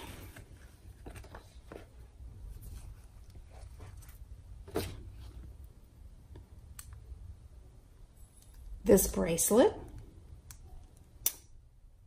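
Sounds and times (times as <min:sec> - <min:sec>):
low steady hum: 0:00.0 - 0:12.0
soft taps and rustles: 0:00.3 - 0:05.5.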